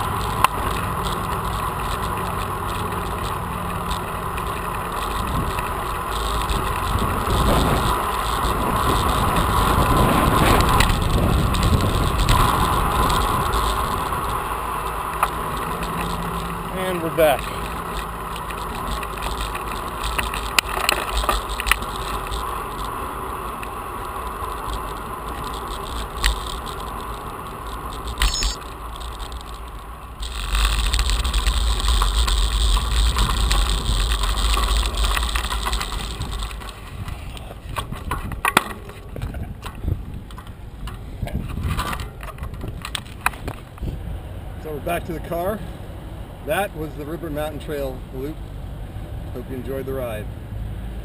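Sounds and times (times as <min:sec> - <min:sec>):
bike clicks and rattles: 0:00.0 - 0:44.0
tyre and road noise: 0:00.0 - 0:51.0
wind rushing over microphone: 0:05.1 - 0:14.7, 0:30.2 - 0:44.6.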